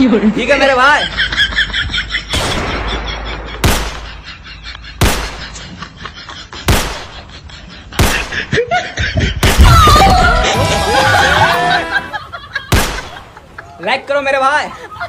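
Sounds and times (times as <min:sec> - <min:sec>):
sharp bangs: 0:02.3 - 0:05.8, 0:06.6 - 0:07.3, 0:08.0 - 0:08.5, 0:12.7 - 0:13.4.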